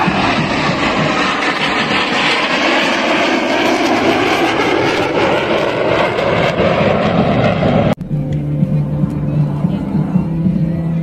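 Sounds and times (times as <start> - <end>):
jet engines flying past: 0.0 - 11.0.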